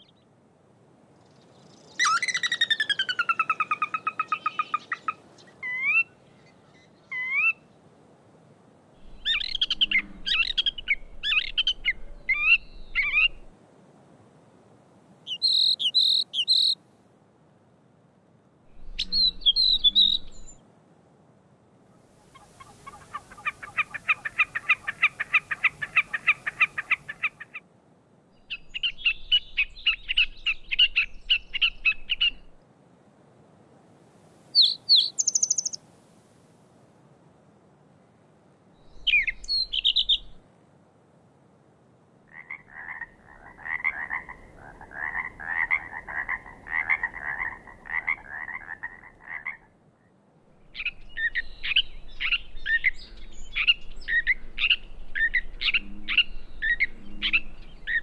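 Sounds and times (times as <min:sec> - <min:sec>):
catbird singing: 0:15.3 - 0:16.8, 0:18.8 - 0:20.5, 0:34.6 - 0:35.8, 0:38.9 - 0:40.4, 0:50.7 - 0:58.0.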